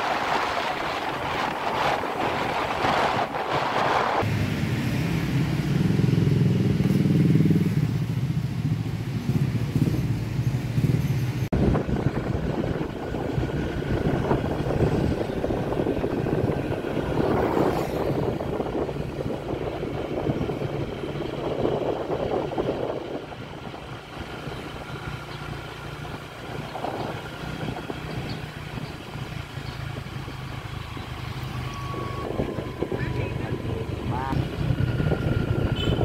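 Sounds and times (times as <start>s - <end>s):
motorbikes passing: 0.0s - 36.0s
street noise: 0.0s - 36.0s.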